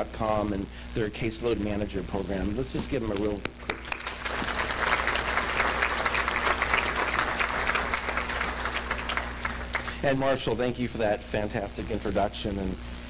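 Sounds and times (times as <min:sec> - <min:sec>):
crowd clapping: 0:03.6 - 0:10.0.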